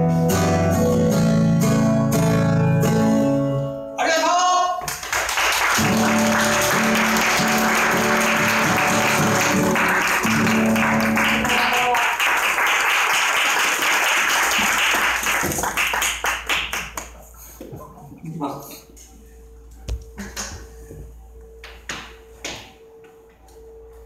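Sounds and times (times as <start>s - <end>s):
acoustic guitar chord ringing: 0.0s - 4.0s, 5.8s - 12.0s
audience applauding: 4.8s - 17.2s.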